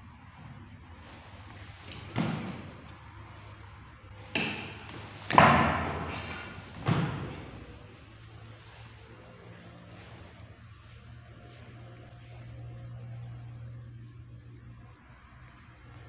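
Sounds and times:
sudden bangs: 4.2s - 8.0s.

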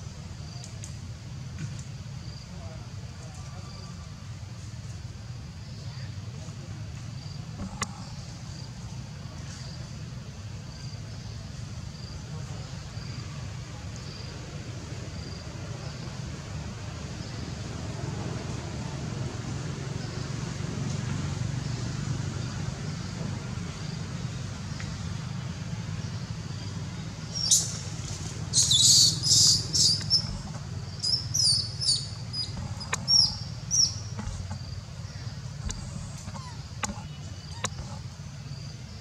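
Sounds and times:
steady low hum: 0.0s - 39.0s
high sharp chirping calls: 27.2s - 37.8s.

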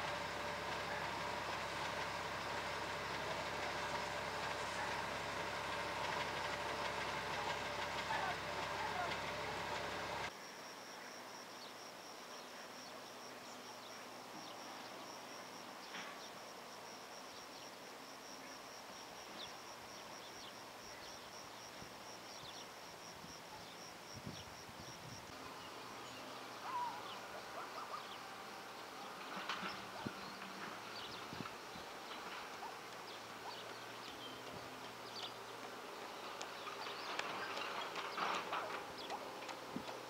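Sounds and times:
faint outdoor hiss: 0.0s - 40.0s
cricket chirping: 10.3s - 40.0s.

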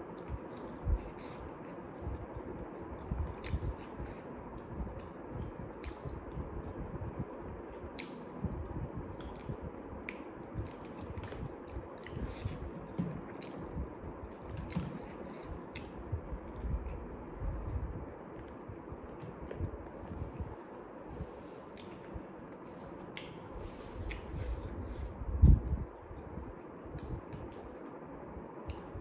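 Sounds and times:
wet chewing of fried chicken: 0.1s - 6.4s.

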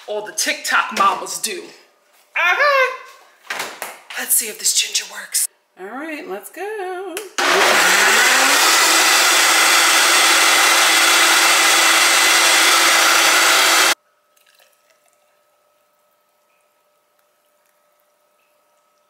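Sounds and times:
blender running: 7.4s - 14.0s
faint steady hum: 14.0s - 19.0s.

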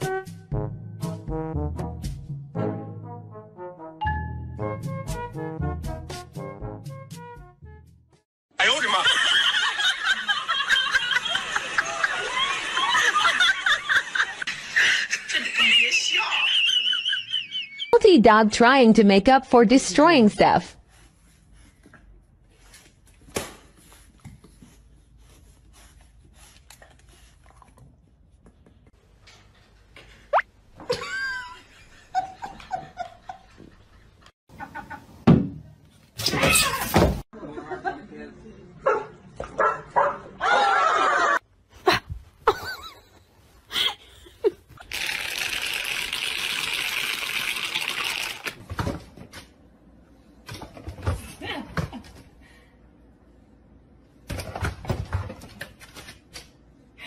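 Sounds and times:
loud laughter: 8.6s - 18.0s, 40.4s - 43.0s.

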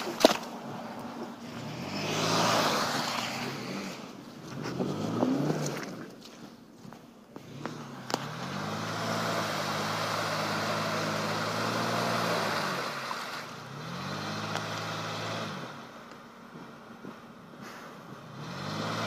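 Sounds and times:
wheels spinning in mud: 0.0s - 6.5s
suv engine revving: 0.6s - 6.0s, 7.4s - 19.0s.

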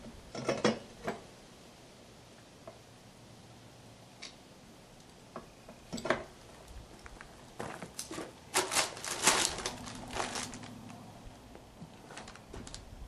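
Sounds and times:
paper crinkling and rustling: 7.2s - 11.1s, 11.8s - 13.0s.

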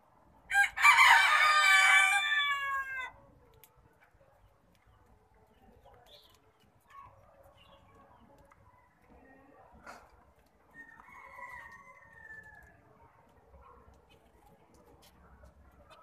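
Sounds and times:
rooster crowing: 0.5s - 3.1s, 10.7s - 12.6s.

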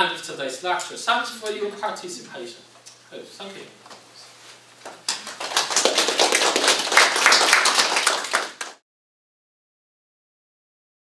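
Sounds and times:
students applauding: 5.1s - 8.8s.

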